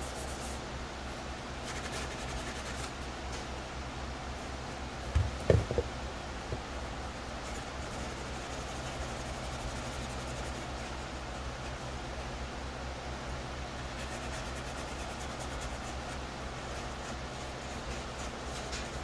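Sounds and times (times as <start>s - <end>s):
steady low hum: 0.0s - 19.0s
plastic helmet knocking on table: 5.1s - 5.9s.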